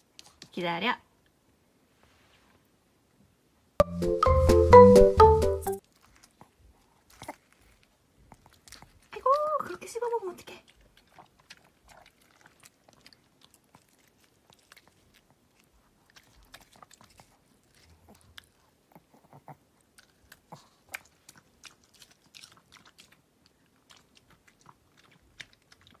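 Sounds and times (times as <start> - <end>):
dog chewing wet clicks: 5.8 - 19.1, 19.8 - 26.0.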